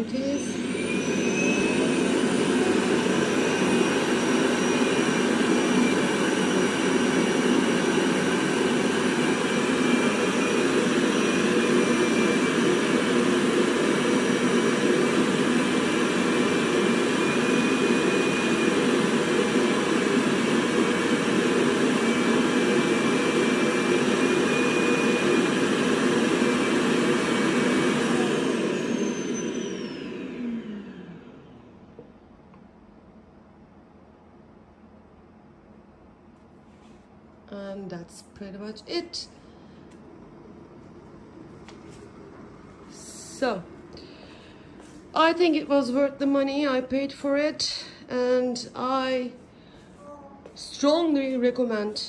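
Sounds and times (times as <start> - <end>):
suction motor running: 0.4 - 31.3.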